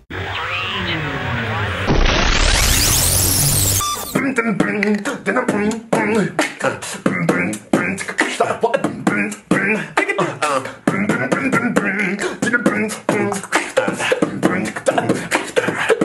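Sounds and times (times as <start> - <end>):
sung vocal sounds: 4.0 - 16.0
beatboxing hip-hop beat: 4.2 - 16.0.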